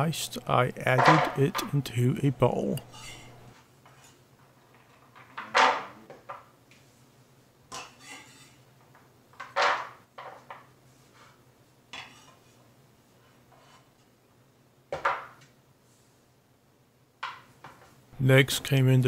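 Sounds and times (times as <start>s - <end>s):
knife scraping on wooden board: 2.8s - 3.5s.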